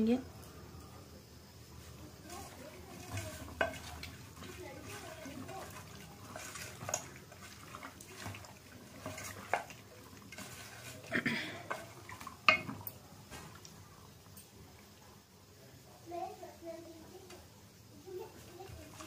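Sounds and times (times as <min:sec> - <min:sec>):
wet squishing of mixed meat: 0:02.2 - 0:13.9
clicks and knocks on steel bowl: 0:12.4 - 0:12.9.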